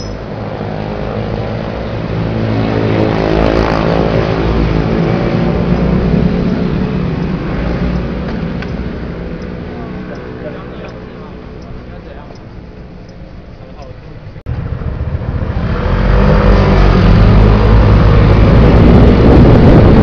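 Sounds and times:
motor scooters riding past: 0.0s - 12.7s.

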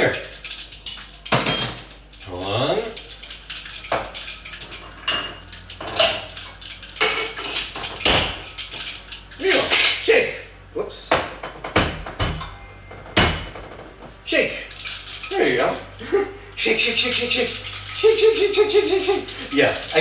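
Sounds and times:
ice clacking in cocktail shaker: 0.0s - 10.1s, 14.3s - 20.0s
person speaking: 14.2s - 20.0s.

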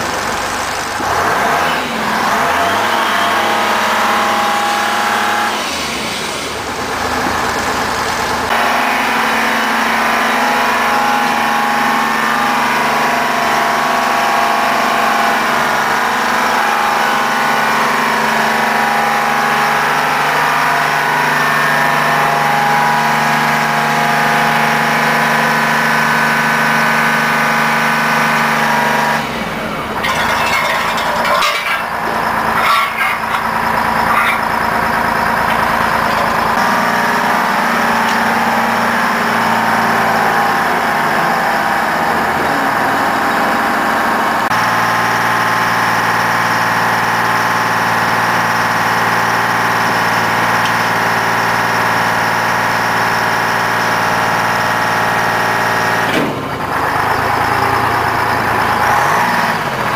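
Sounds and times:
crane engine idling: 0.0s - 59.9s
metal knocks: 30.0s - 34.5s.

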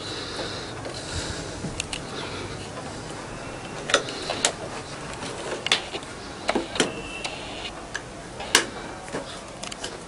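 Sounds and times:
high squeak: 6.8s - 7.7s.

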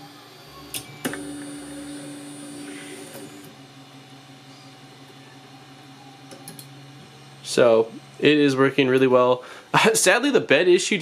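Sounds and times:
stepper motors whining: 0.0s - 3.6s.

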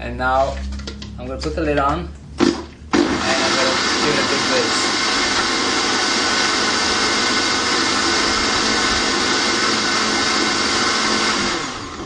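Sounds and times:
blender running: 2.4s - 12.0s.

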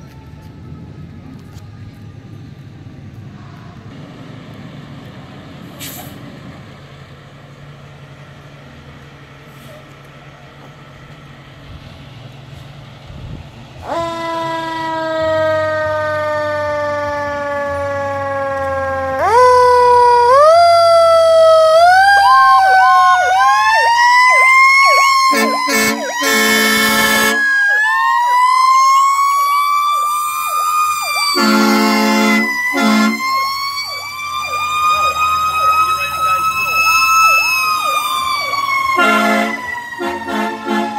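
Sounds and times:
fire engine siren wailing: 0.0s - 12.6s, 13.2s - 40.9s
low engine rumble: 0.0s - 40.9s
air horn blasts: 25.2s - 27.5s, 31.3s - 33.4s, 38.9s - 40.9s.

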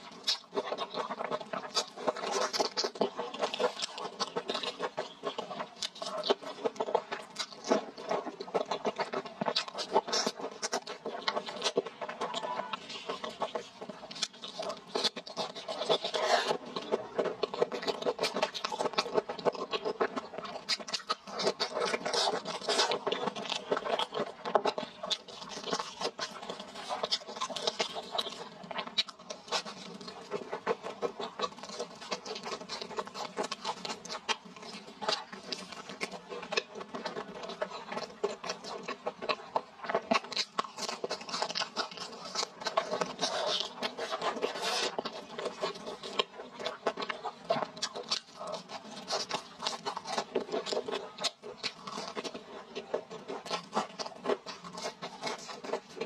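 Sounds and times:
crunchy chewing: 0.0s - 56.0s.

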